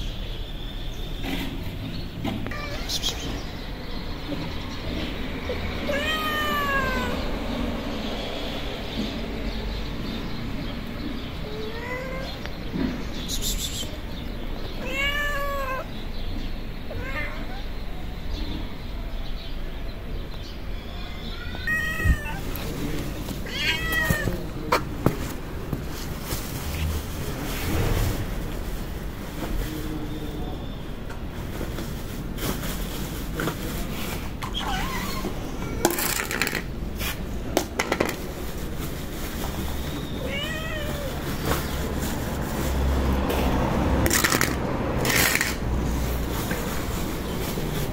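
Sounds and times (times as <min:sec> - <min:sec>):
cat meowing: 0:02.4 - 0:03.3, 0:05.8 - 0:07.4, 0:11.4 - 0:12.5, 0:14.7 - 0:16.0, 0:16.9 - 0:17.8, 0:20.9 - 0:22.7, 0:23.4 - 0:24.6, 0:40.1 - 0:41.4
plastic plates clattering on tiles: 0:35.8 - 0:36.8, 0:37.5 - 0:38.4, 0:44.0 - 0:45.8.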